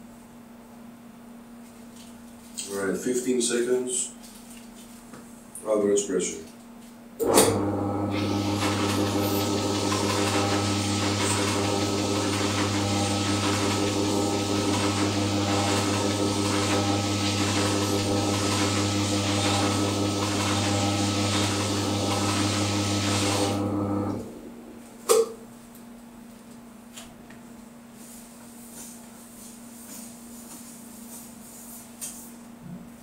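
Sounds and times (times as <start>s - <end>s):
electric motor humming: 7.2s - 24.4s.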